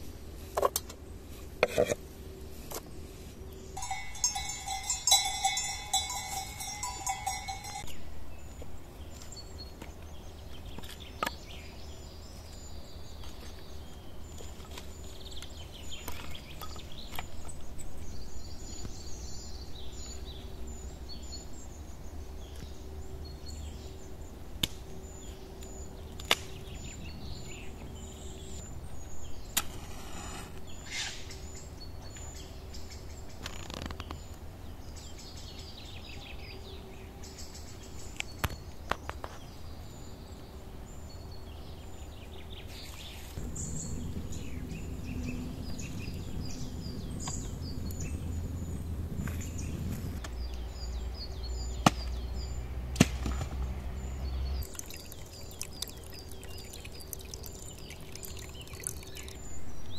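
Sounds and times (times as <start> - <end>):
livestock bell ringing: 3.8 - 8.0.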